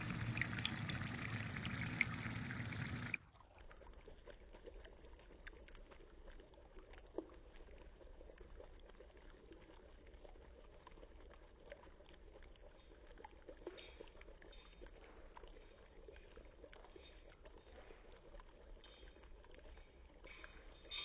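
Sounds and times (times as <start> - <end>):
dry ice bubbling: 0.0 - 21.0.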